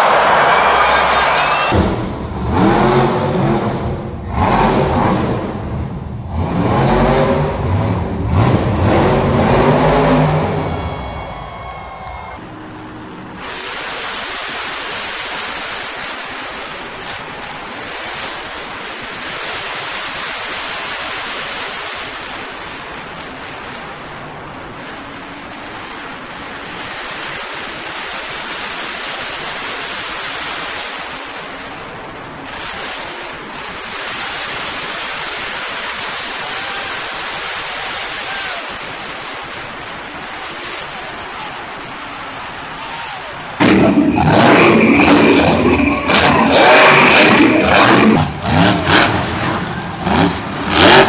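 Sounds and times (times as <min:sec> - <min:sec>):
crowd: 0:00.0 - 0:13.8, 0:31.9 - 0:51.0
monster truck engines roaring: 0:00.0 - 0:51.0.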